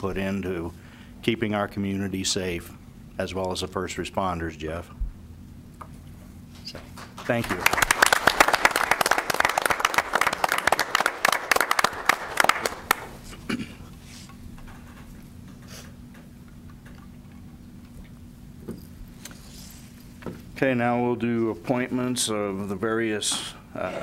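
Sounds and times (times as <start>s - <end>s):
faint steady hum: 0.0s - 24.0s
small group applauding: 6.8s - 13.4s.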